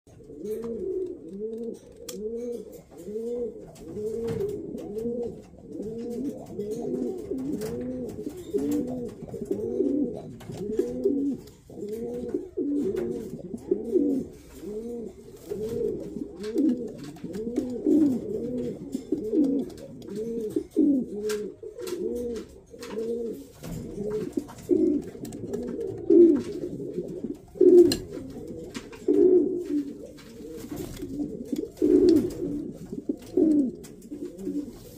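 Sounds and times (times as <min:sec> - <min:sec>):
pigeon cooing: 0:00.1 - 0:34.9.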